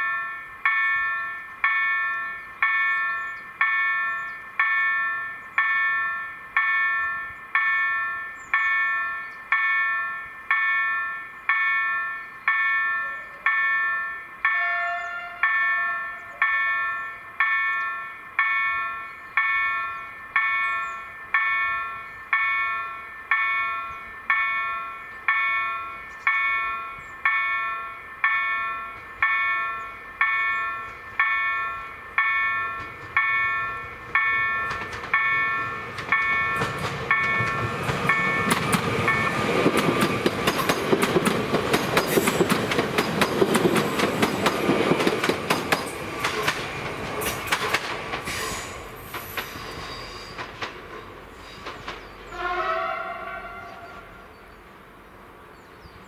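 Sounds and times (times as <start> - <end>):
level crossing bell striking: 0.0 - 39.5
train horn blast: 14.5 - 15.6, 52.3 - 54.3
train wheels clicking over rails: 32.2 - 52.3.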